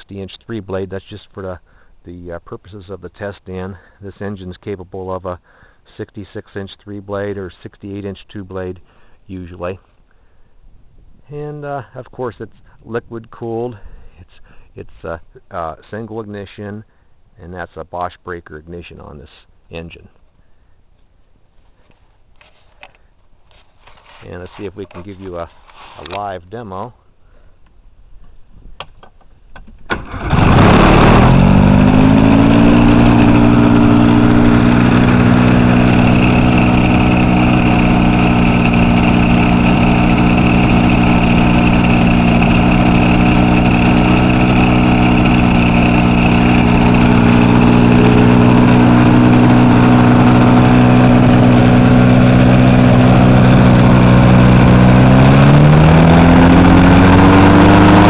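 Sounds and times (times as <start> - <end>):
electric starter cranking: 29.9 - 58.0
two-stroke engine idling: 30.2 - 58.0.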